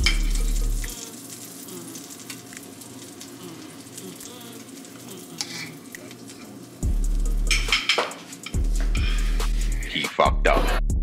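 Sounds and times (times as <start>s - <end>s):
batter sizzling in a frying pan: 0.0s - 9.9s
spoon scraping a dish: 5.4s - 6.6s.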